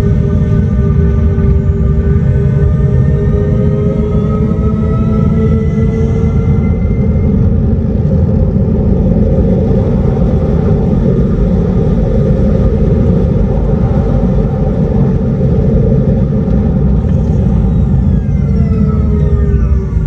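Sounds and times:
faint steady warning tones: 0.0s - 20.0s
low rumble of motor and road noise: 0.0s - 20.0s.

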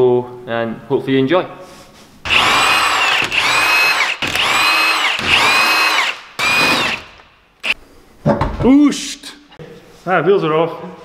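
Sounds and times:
impact wrench bursts: 2.3s - 7.8s.

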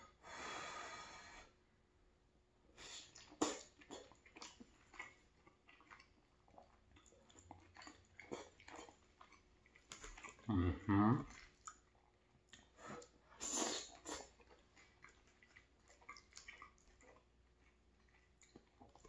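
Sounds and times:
wet chewing: 2.8s - 19.0s
person humming: 10.5s - 11.2s.

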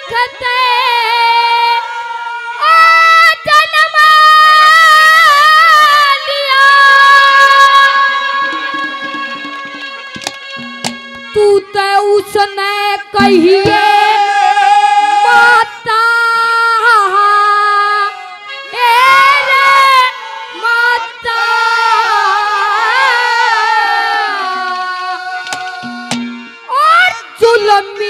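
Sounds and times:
boy singing into microphone: 0.0s - 9.5s, 11.2s - 26.1s, 26.7s - 28.0s.

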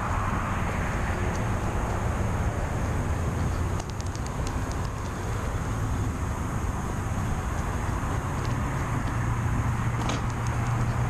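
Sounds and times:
passing road traffic: 0.0s - 11.0s
light high ticks: 3.7s - 5.2s.

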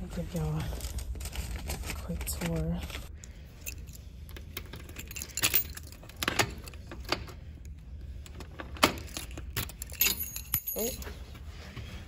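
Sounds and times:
keys jangling: 3.6s - 7.2s, 8.8s - 11.2s.

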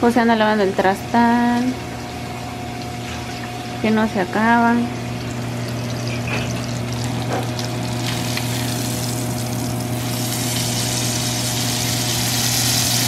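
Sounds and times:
low mechanical hum: 0.0s - 13.0s
meat sizzling in a frying pan: 6.8s - 13.0s.

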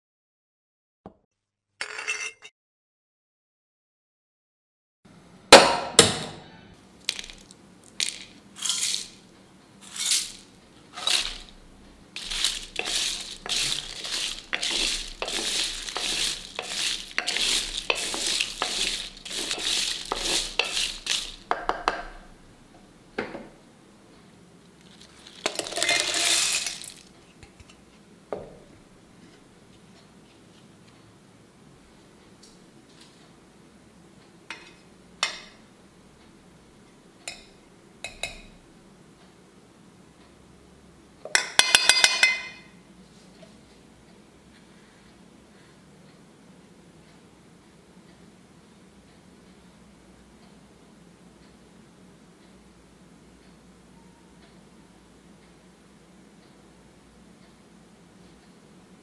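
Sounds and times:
spices clattering in metal pan: 7.1s - 9.2s, 9.9s - 11.6s, 12.2s - 22.3s, 25.1s - 27.1s, 41.3s - 42.6s.

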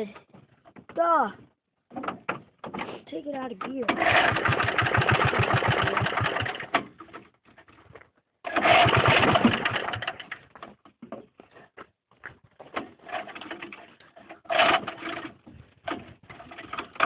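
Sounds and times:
small engine cranking: 3.8s - 6.8s, 8.4s - 10.4s, 14.4s - 15.4s.

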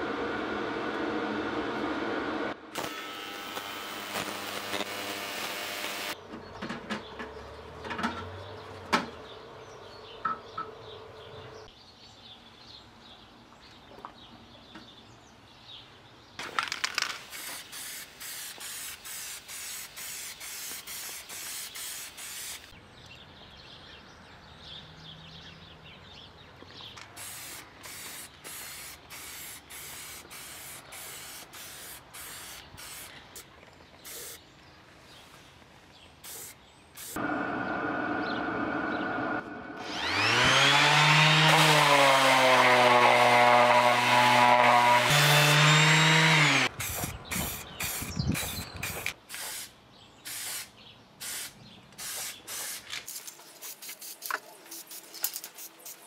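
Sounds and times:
ultrasonic cleaner buzzing: 0.0s - 6.2s, 37.2s - 46.7s
parts clicking and knocking: 16.4s - 17.3s
spray paint can hissing: 16.9s - 22.8s, 27.2s - 33.1s, 34.0s - 34.4s, 36.2s - 37.2s, 46.8s - 49.7s, 50.3s - 56.0s.

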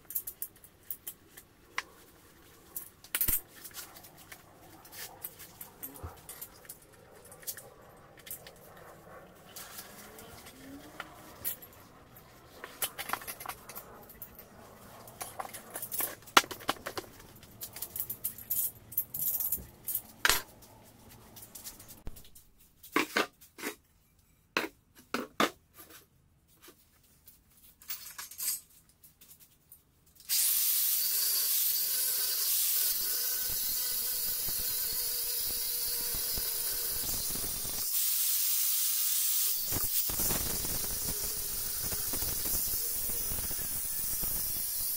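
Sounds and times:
work pieces clicking and knocking: 15.2s - 20.5s
angle grinder on metal rim: 30.3s - 44.9s.

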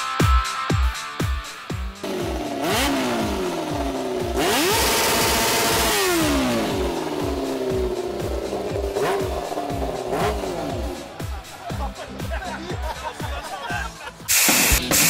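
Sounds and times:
dance music beat: 0.0s - 15.0s
go-kart engine revving: 2.0s - 11.5s.

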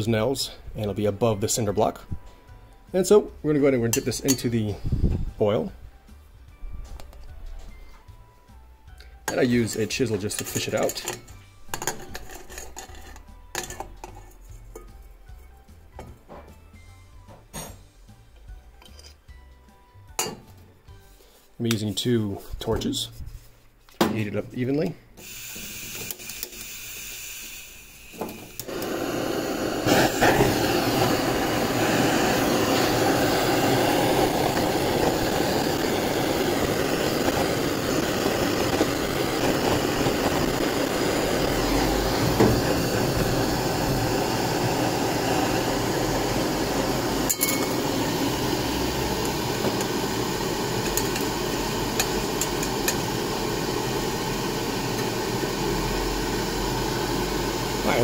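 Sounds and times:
butane torches hissing: 4.6s - 5.3s, 25.2s - 58.0s.

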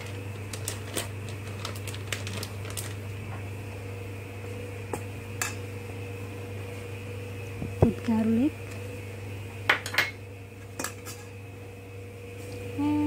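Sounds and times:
kitchen clicks and crinkles: 0.0s - 3.4s
steady low hum: 0.0s - 13.0s.

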